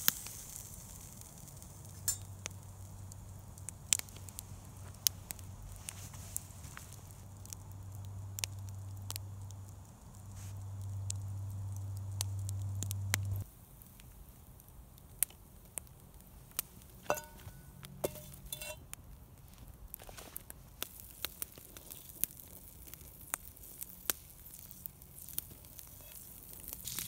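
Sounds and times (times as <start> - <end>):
campfire crackling and popping: 0.0 - 27.0
steady low rumble: 1.1 - 13.5.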